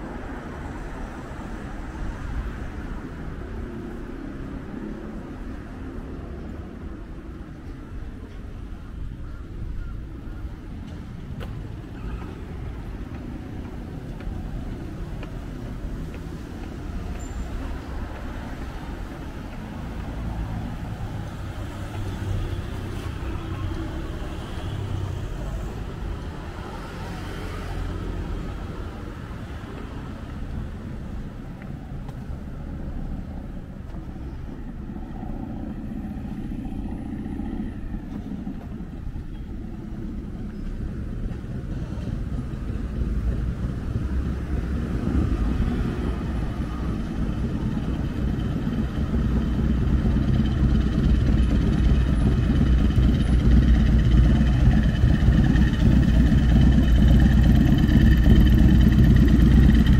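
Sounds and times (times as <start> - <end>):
road traffic rumble: 0.0 - 59.9
vehicle passing close: 11.6 - 59.9.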